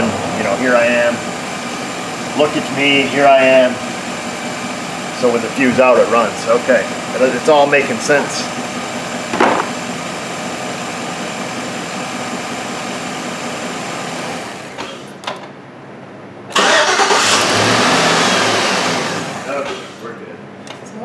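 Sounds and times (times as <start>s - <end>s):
truck engine idling: 0.0s - 14.7s
engine cranking and restarting: 16.5s - 20.0s.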